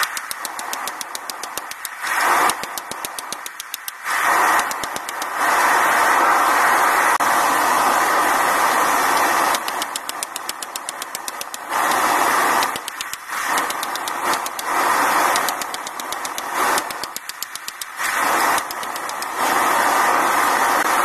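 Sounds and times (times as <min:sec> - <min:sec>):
hammer blows on hot steel: 0:00.0 - 0:05.6.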